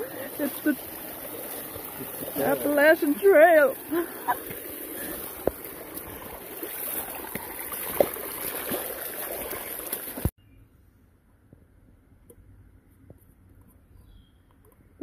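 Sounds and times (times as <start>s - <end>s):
stream splashing over rocks: 0.0s - 10.3s.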